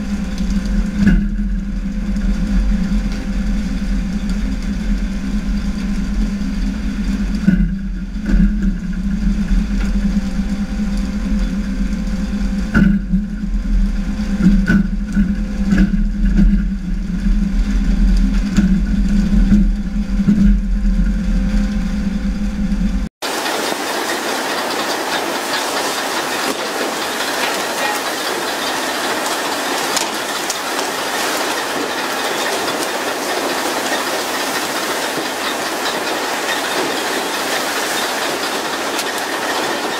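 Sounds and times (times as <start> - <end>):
boat engine droning: 0.0 - 39.9
water jetting onto sea hiss: 23.2 - 39.9.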